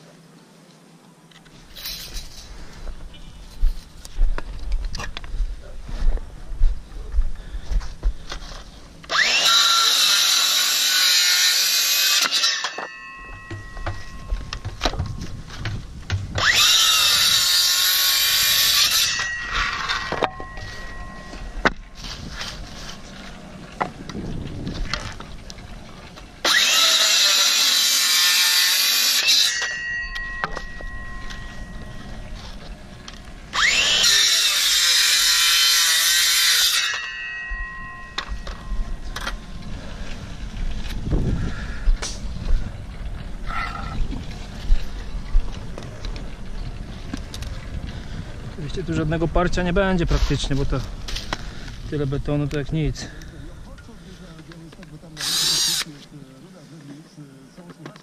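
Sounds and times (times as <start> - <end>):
electric saw cutting wood: 9.1 - 14.0, 16.4 - 20.8, 26.4 - 30.6, 33.5 - 37.2, 55.2 - 55.9.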